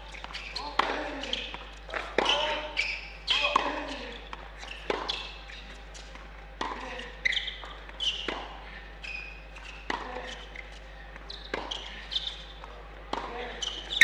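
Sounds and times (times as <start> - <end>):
sneaker squeaks on court: 0.0 - 12.6, 13.2 - 14.0
ball bounces: 11.2 - 14.0.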